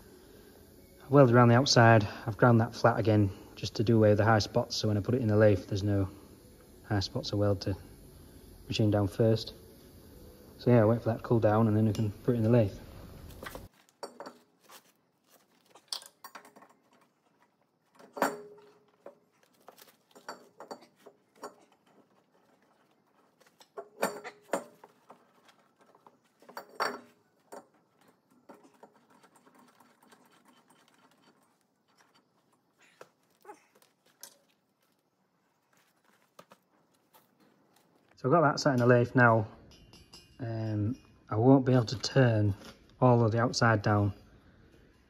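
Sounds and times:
metal clanks and knocks: 13.5 - 14.7, 15.4 - 33.0.

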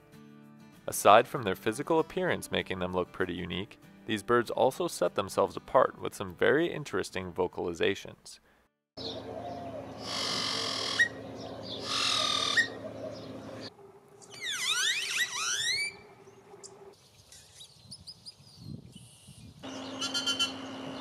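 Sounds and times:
steady low hum: 9.0 - 14.3
birds squawking calls: 9.0 - 17.7, 19.6 - 21.0
bird gliding whistles: 9.2 - 21.0.

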